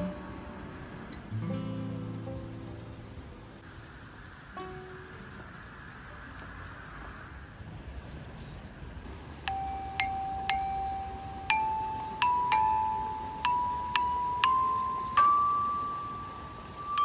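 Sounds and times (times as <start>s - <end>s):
glockenspiel notes ringing: 9.4s - 17.0s.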